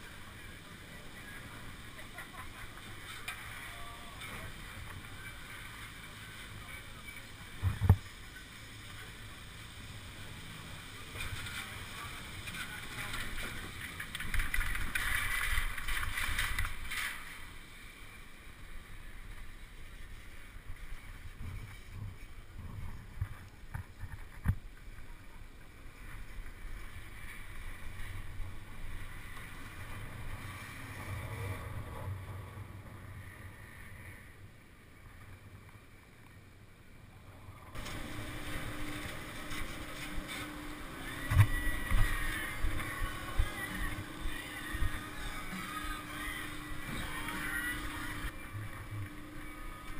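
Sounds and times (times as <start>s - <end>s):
steady hum with knocks: 7.5s - 8.1s, 21.0s - 25.0s, 37.7s - 49.9s.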